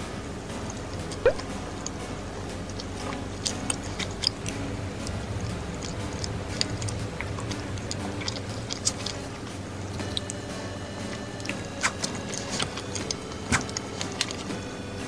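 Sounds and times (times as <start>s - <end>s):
low steady hum: 0.0s - 15.0s
wet mouth clicks: 0.6s - 2.0s, 11.4s - 14.4s
person chewing soft food: 0.6s - 15.0s.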